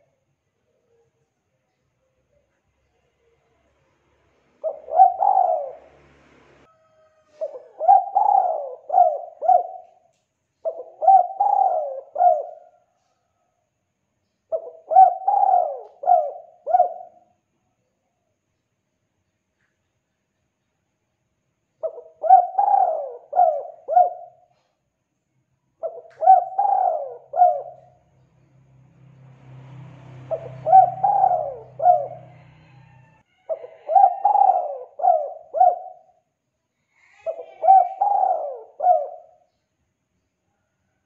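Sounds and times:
dove cooing: 4.6 - 6.2, 6.8 - 12.9, 14.5 - 17.2, 21.8 - 24.7, 25.8 - 28.0, 30.3 - 36.2, 37.0 - 39.4.

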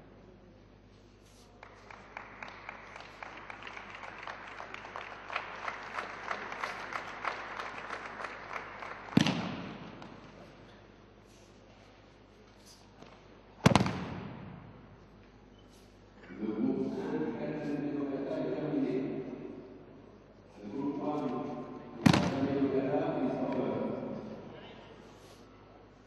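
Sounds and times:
spectators clapping: 1.4 - 10.2.

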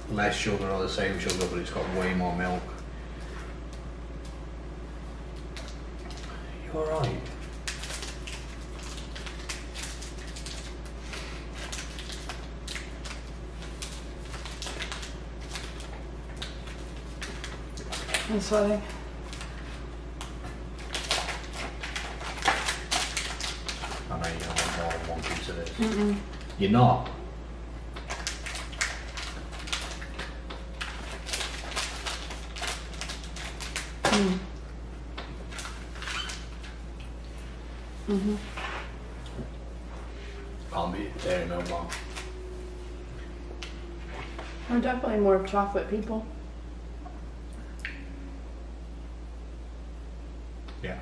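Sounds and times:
steady low hum: 0.0 - 51.0
wrapper crinkling: 7.1 - 26.6, 27.9 - 34.4, 35.4 - 37.0, 40.7 - 42.8.

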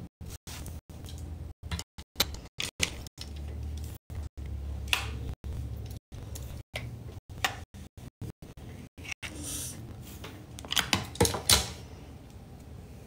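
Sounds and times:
objects clicking and knocking: 1.0 - 4.0, 10.6 - 11.8.

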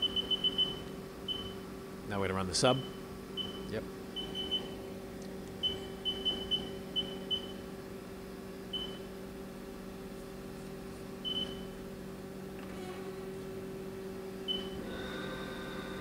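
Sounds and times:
lathe humming: 14.8 - 16.0.

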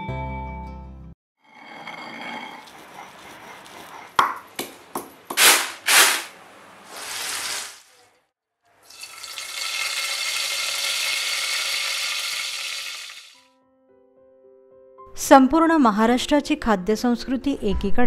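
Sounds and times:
stone pestle pounding in mortar: 3.8 - 6.0
leaves sizzling in hot oil: 6.9 - 7.9, 8.8 - 13.4.

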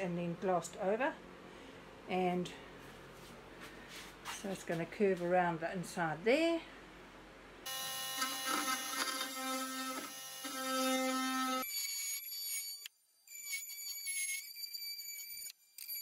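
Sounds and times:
high power tool whine: 7.7 - 14.4
multi-tool buzzing cutting wood: 7.7 - 14.4.

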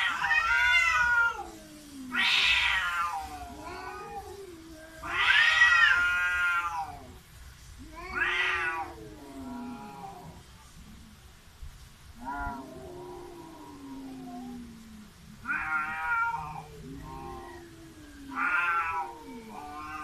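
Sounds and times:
cats yowling: 0.0 - 7.2, 7.8 - 10.5, 12.2 - 20.0.

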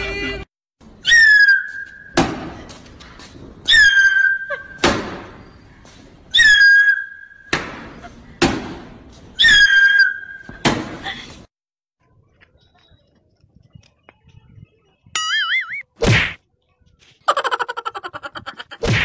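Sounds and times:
thud: 2.2 - 2.6, 10.5 - 11.0.

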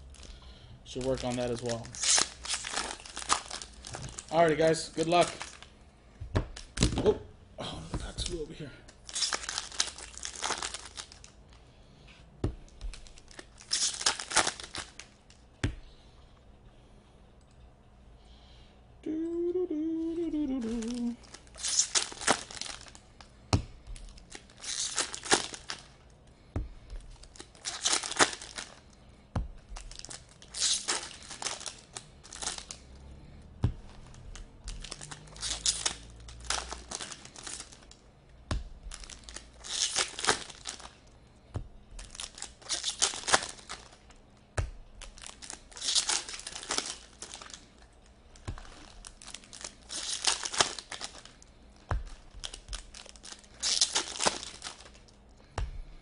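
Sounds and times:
foil wrappers tearing and crinkling: 0.0 - 5.7, 8.1 - 11.4, 12.8 - 15.4, 20.6 - 23.2, 23.9 - 26.1, 27.0 - 28.9, 29.7 - 32.8, 34.1 - 38.0, 38.8 - 41.1, 41.9 - 44.2, 45.0 - 55.2.

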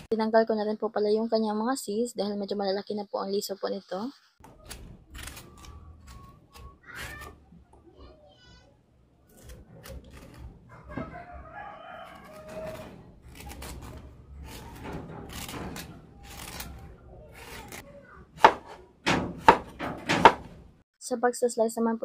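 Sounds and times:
rooster crowing: 10.7 - 13.0.

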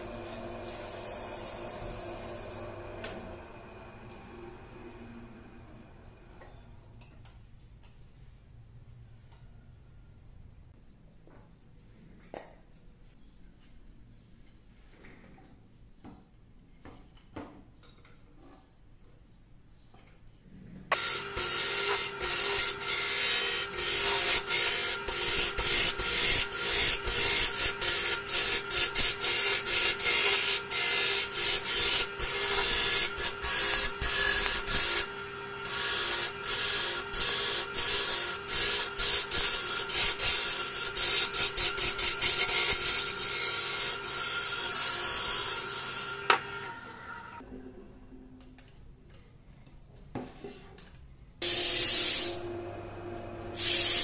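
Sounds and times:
lathe humming: 0.0 - 6.3
gouge cutting wood hiss: 53.6 - 54.0.

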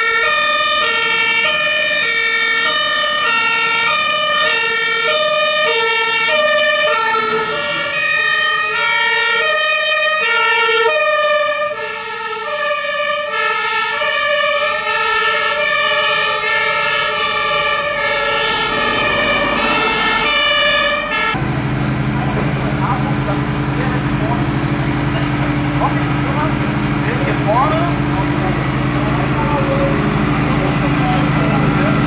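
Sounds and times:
two-tone fire engine siren: 0.0 - 32.0.

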